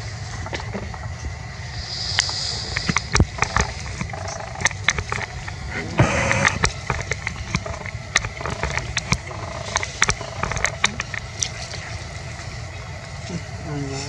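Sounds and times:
low steady rumble: 0.0s - 14.0s
dry leaves crackling: 6.8s - 14.0s.

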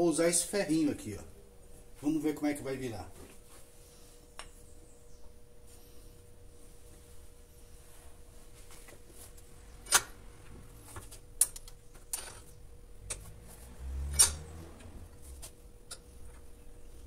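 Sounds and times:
faint steady hum: 0.0s - 17.0s
iron bar clinking against vise: 14.1s - 14.5s.

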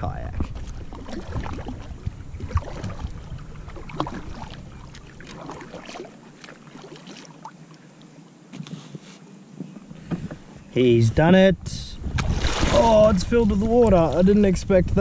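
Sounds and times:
low rumble: 0.0s - 5.9s.

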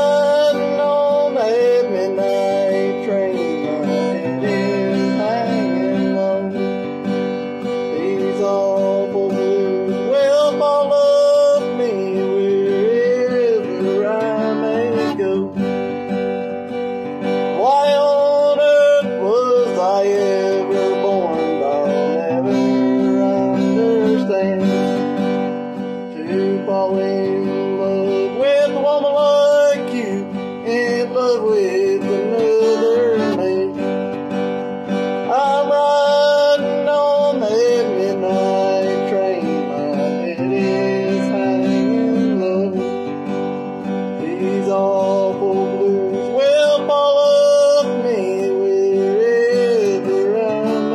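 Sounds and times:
acoustic guitar strumming: 0.0s - 50.9s
man singing bluegrass song: 0.0s - 50.9s.

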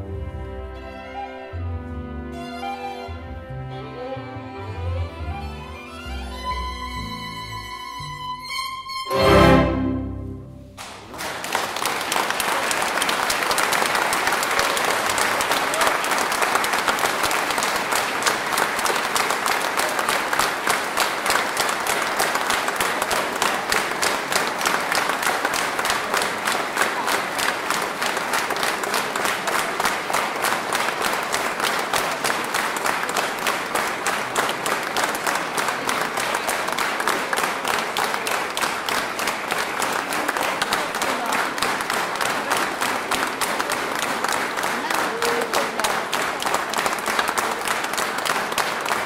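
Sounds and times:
large audience applauding: 10.8s - 49.0s.

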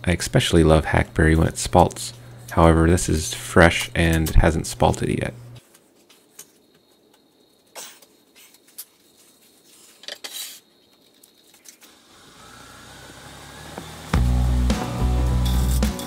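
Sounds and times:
lathe motor humming and whining: 12.0s - 14.7s.

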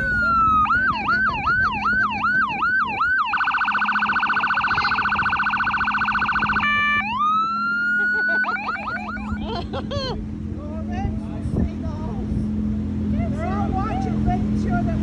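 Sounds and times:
electronic siren cycling tones: 0.0s - 9.6s.

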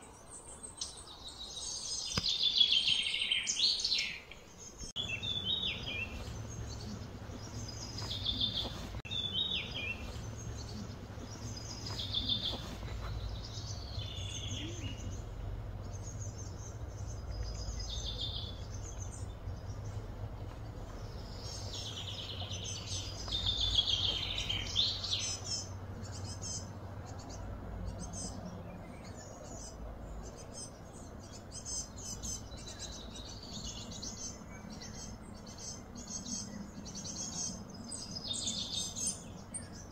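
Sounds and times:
birds chirping and trilling: 0.0s - 39.9s
low steady hum: 4.3s - 39.9s.

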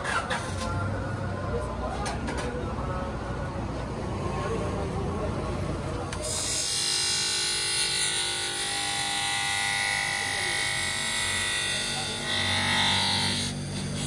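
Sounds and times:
bench grinder whining: 6.1s - 14.0s.

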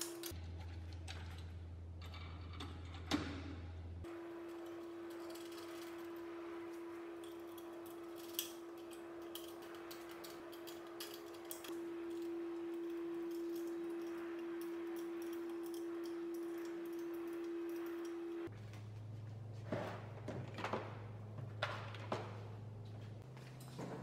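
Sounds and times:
steady hum: 3.9s - 20.2s.

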